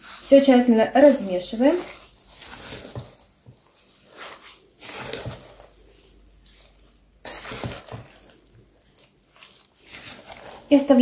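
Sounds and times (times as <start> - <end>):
wooden spatula stirring wet mix: 0.0 - 11.0.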